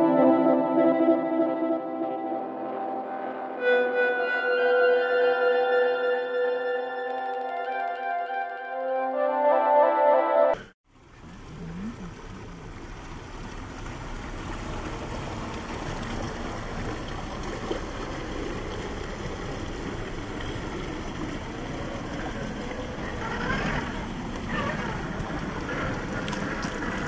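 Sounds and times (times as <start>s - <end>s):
stream water rushing: 10.9s - 27.0s.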